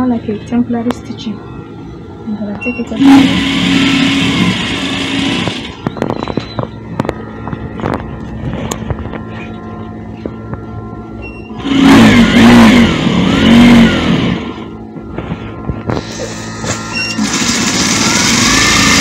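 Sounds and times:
sewing machine running: 3.0 - 5.8, 11.6 - 14.7, 16.1 - 19.0.

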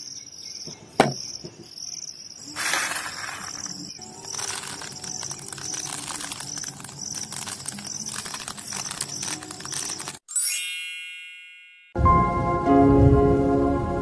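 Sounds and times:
insects chirping: 0.0 - 10.2
bright chime ringing: 10.3 - 12.1.

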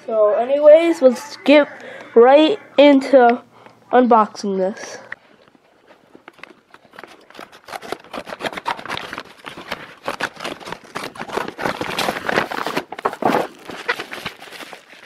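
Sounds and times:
mailer bag crinkling and rustling: 5.9 - 15.0.

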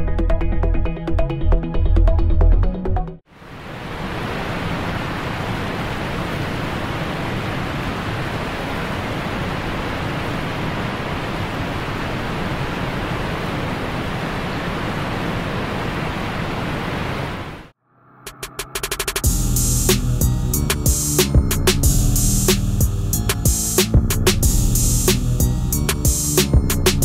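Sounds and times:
roar of rushing water: 3.3 - 17.7.

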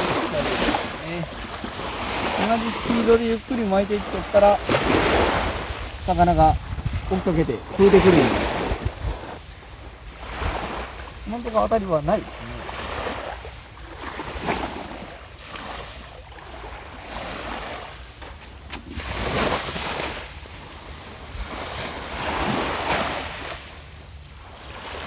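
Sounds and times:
wind rumble on microphone: 0.0 - 11.5
small waves washing onto beach: 0.0 - 25.0.

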